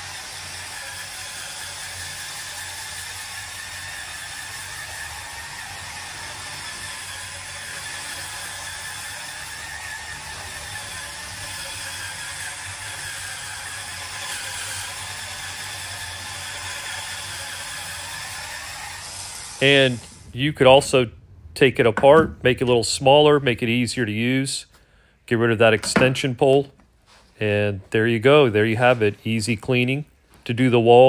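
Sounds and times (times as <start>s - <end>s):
electric motor whirring: 0.0s - 20.4s.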